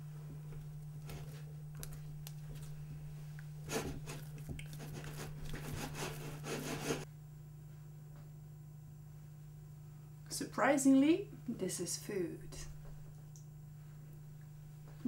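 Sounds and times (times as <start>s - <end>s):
low hum: 0.0s - 10.2s
utensil scraping mix in pan: 3.6s - 7.1s.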